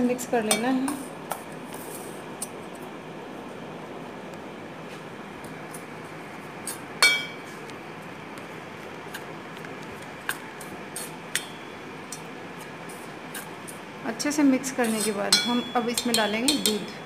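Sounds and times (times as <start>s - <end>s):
metal spoon scraping steel bowl: 14.7s - 16.9s.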